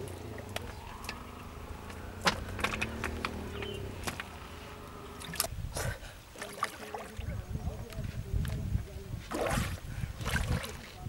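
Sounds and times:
low steady rumble: 0.0 - 6.2
sharp clicks and knocks: 1.8 - 4.4
water splashing from thrashing fish: 6.3 - 7.3, 9.3 - 11.0.

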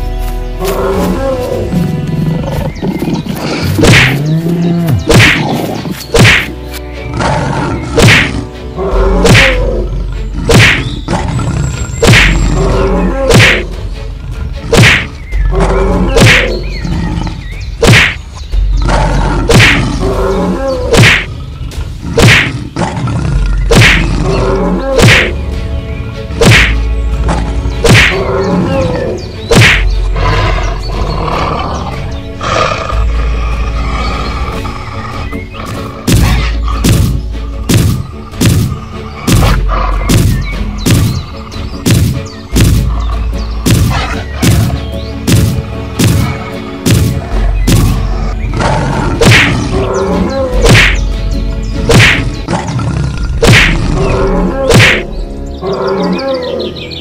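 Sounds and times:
deep pulsing bass: 29.6 - 52.5.

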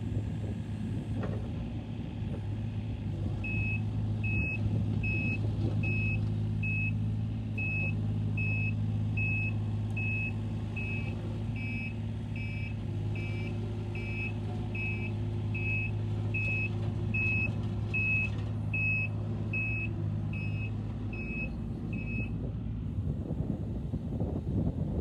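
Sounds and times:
diesel engine running: 0.0 - 25.0
excavator travel alarm beeping: 3.4 - 7.0, 7.6 - 22.3.

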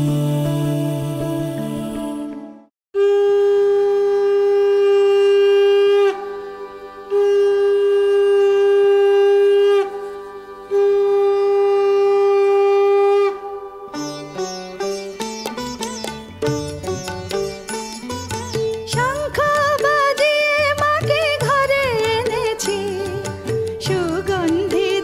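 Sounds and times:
conch shell blown: 3.0 - 14.0.

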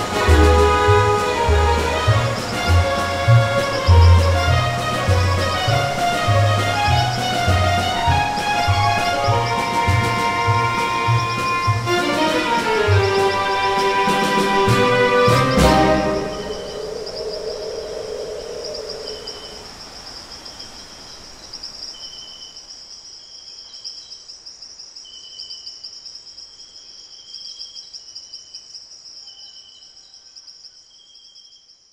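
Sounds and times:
music: 0.0 - 16.9
insects trilling: 0.0 - 31.9.

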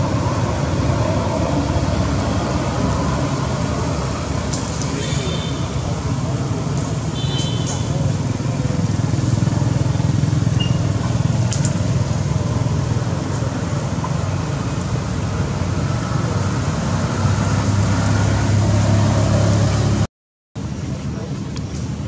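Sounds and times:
motorbikes and cars on road: 0.0 - 22.0.

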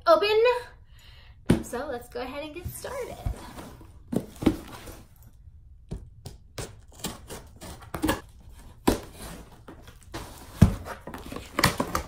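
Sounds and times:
knife slicing packing tape: 6.6 - 8.2.

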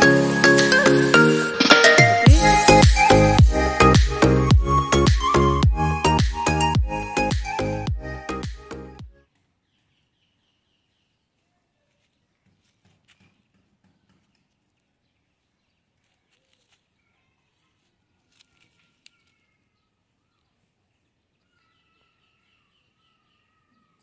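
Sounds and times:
faint birds calling: 7.2 - 24.0
soft rustles: 15.8 - 19.6.

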